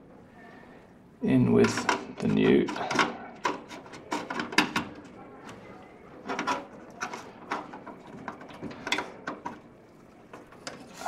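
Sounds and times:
clicks and knocks: 1.6s - 5.6s, 6.2s - 9.7s.

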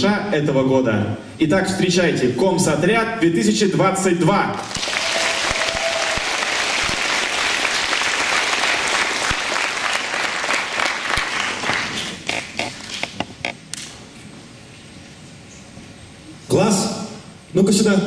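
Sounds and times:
audience applause: 4.6s - 13.1s.

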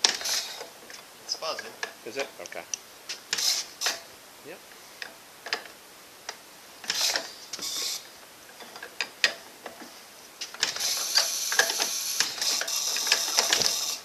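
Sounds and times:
engine crank clicking: 0.0s - 0.7s, 10.4s - 14.0s
ignition coils buzzing: 0.0s - 14.0s.

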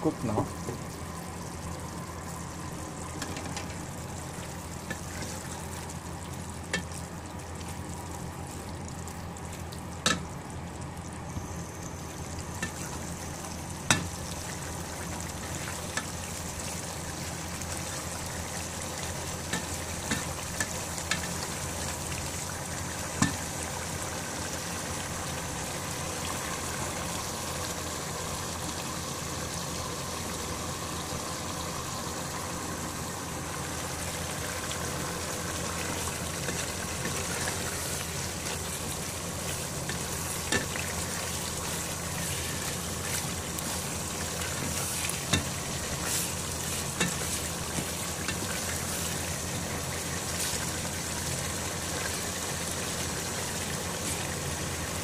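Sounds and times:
steady low hum: 0.0s - 55.0s
curry simmering and sizzling: 0.2s - 55.0s.

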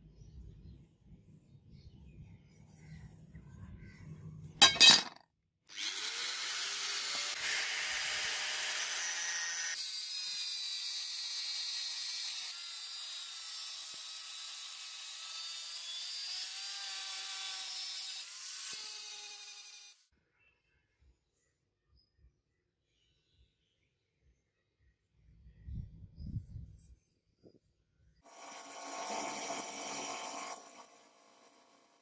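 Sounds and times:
angle grinder cutting steel: 4.6s - 20.0s, 28.3s - 32.0s.

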